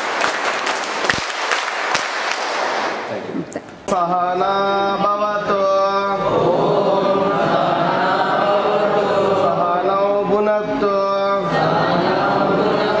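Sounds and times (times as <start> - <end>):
group chanting a prayer: 3.9 - 13.0.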